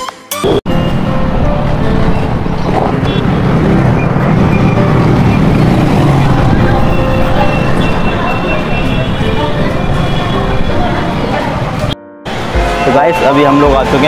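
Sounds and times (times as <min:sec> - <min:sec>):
road and wind noise: 0:00.6 - 0:14.0.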